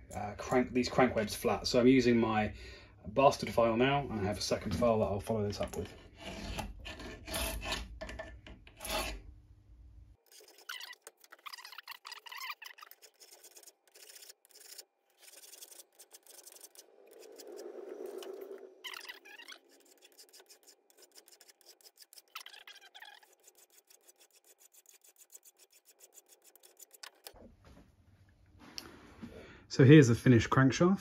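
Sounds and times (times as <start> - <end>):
hand file scraping metal: 5.8 - 7.9, 8.7 - 9.2, 10.3 - 27.3.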